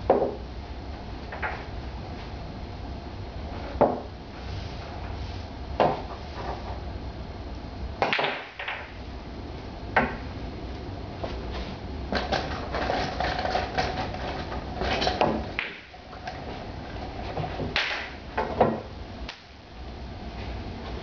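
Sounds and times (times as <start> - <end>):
pool balls clacking: 0.0 - 0.4, 1.3 - 1.7, 3.7 - 4.1, 5.8 - 6.8, 8.0 - 9.0, 9.9 - 10.3, 12.1 - 18.9
cue tip striking cue ball: 8.0 - 9.0.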